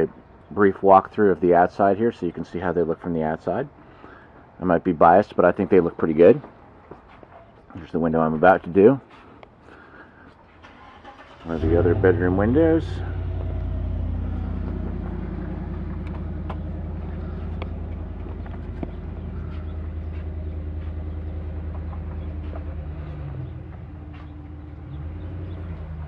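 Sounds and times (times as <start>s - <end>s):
engine idling: 10.7s - 26.0s.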